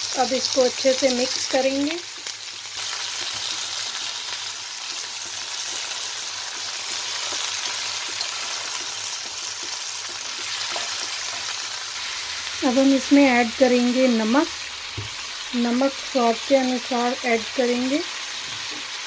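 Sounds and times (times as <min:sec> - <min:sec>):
food sizzling in hot oil: 0:00.0 - 0:19.0.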